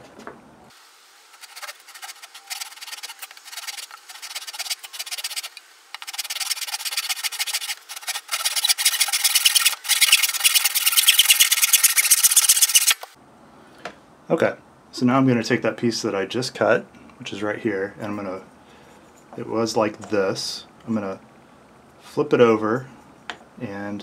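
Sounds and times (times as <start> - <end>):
saw cutting wood: 1.3 - 13.1.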